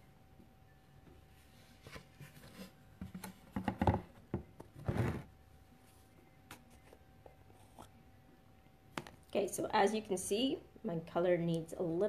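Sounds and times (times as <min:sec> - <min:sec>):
rustles taps and knocks of handling: 0:01.9 - 0:04.9.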